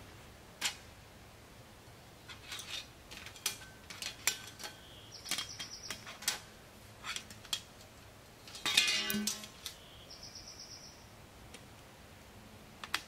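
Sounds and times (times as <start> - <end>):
metal camping gear clinking: 2.3 - 9.8.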